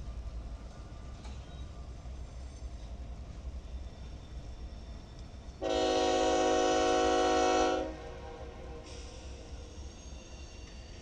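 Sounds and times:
freight train rumbling past: 0:00.0 - 0:11.0
locomotive air horn: 0:05.6 - 0:09.0.

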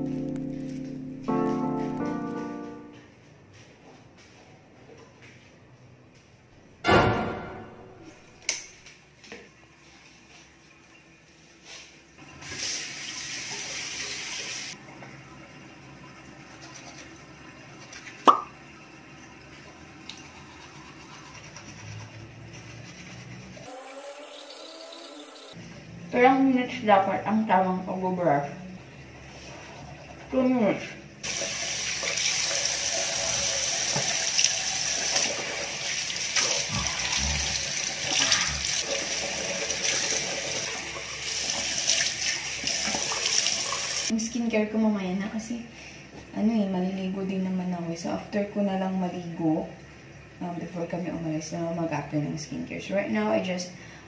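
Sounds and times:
sharp knock: 0:06.9 - 0:08.1
bathroom sink tap running: 0:12.2 - 0:22.5, 0:23.5 - 0:25.6, 0:28.8 - 0:44.1
person brushing teeth: 0:21.0 - 0:23.7
person spitting: 0:36.7 - 0:37.6.

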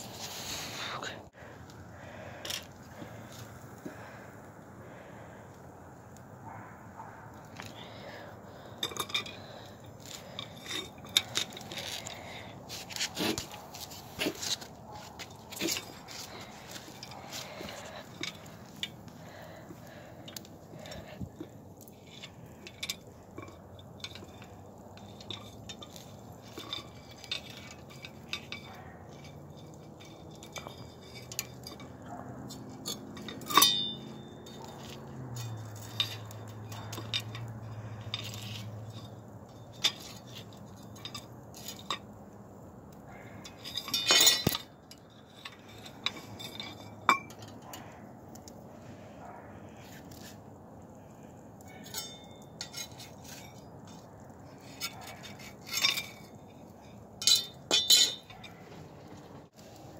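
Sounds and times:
metal clinks of wire grill basket: 0:07.5 - 0:42.2, 0:42.9 - 0:48.5, 0:51.2 - 0:59.4
tongs tapping on wire: 0:15.2 - 0:48.6, 0:51.3 - 0:58.7.

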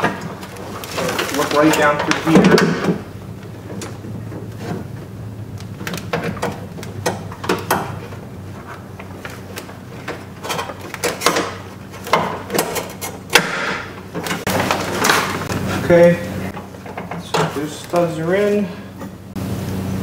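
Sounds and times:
plastic sheet rustling: 0:00.0 - 0:02.8, 0:14.3 - 0:16.5.

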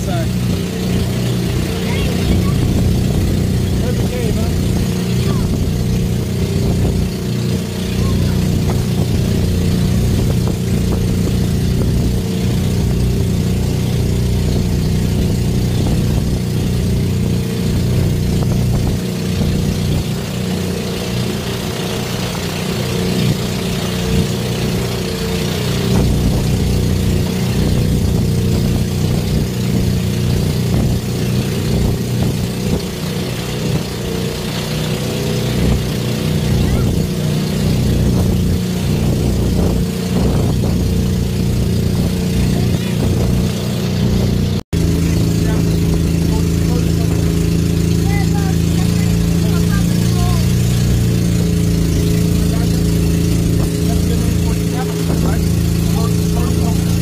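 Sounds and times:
boat engine droning: 0:00.0 - 0:57.0.

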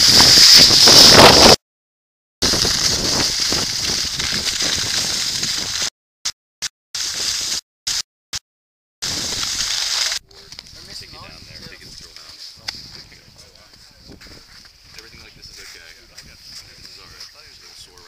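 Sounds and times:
skis sliding over snow: 0:00.0 - 0:01.6, 0:02.4 - 0:05.9, 0:07.0 - 0:07.6, 0:09.0 - 0:18.0
wind on microphone: 0:00.0 - 0:01.6, 0:02.4 - 0:05.9, 0:09.0 - 0:09.8, 0:10.6 - 0:18.0.

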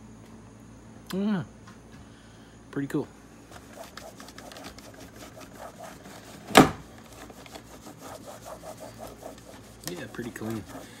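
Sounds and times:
cloth scrubbing plastic case: 0:03.5 - 0:11.0
loud thump: 0:06.5 - 0:06.9.

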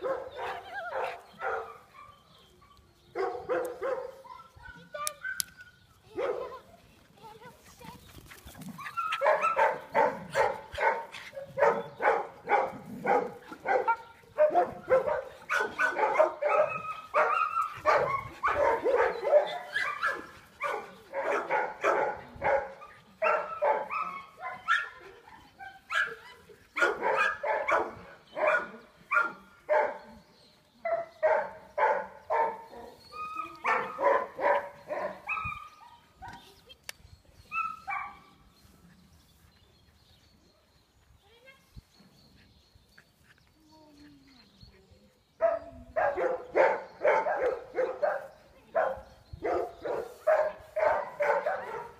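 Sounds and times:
dog barking: 0:00.0 - 0:02.1, 0:03.2 - 0:04.2, 0:09.1 - 0:25.0, 0:25.9 - 0:26.2, 0:26.8 - 0:30.0, 0:30.9 - 0:32.9, 0:33.6 - 0:35.6, 0:45.4 - 0:51.9.

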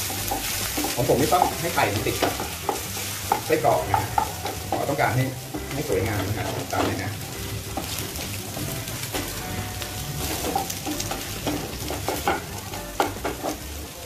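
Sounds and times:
spatula scraping and knocking pan: 0:00.0 - 0:13.8
food sizzling in a frying pan: 0:00.0 - 0:14.0.

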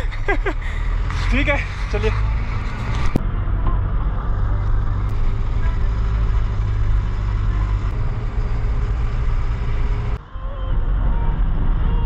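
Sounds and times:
road noise: 0:00.0 - 0:12.0
truck engine droning: 0:00.0 - 0:12.0.

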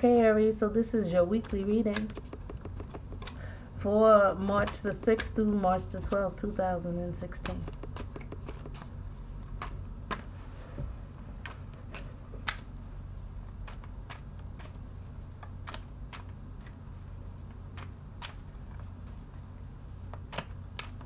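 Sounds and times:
steady low hum: 0:00.0 - 0:21.0
cards being shuffled: 0:01.3 - 0:03.4, 0:07.3 - 0:10.4, 0:13.4 - 0:16.8, 0:17.4 - 0:19.4, 0:20.1 - 0:21.0.

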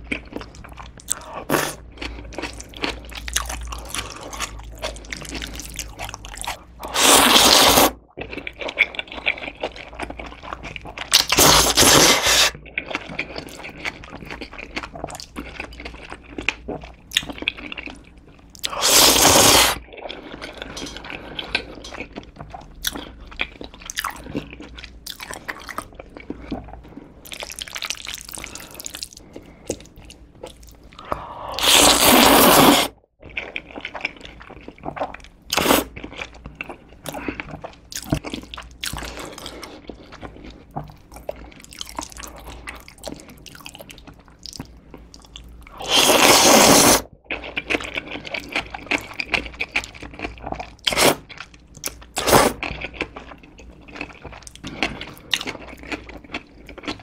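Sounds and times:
loud noodle slurps: 0:06.9 - 0:08.0, 0:11.3 - 0:12.6, 0:18.7 - 0:19.8, 0:31.5 - 0:33.0, 0:45.8 - 0:47.1, 0:50.9 - 0:51.2, 0:52.2 - 0:52.6
wet chewing and smacking: 0:08.0 - 0:11.8, 0:12.5 - 0:18.8, 0:19.8 - 0:31.1, 0:33.2 - 0:45.8, 0:47.2 - 0:57.0.

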